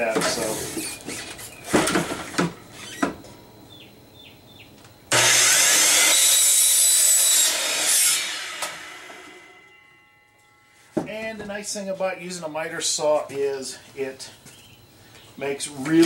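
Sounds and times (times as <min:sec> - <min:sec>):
miter saw cutting plastic pipe: 0:05.1 - 0:09.6
miter saw winding down: 0:05.1 - 0:09.6.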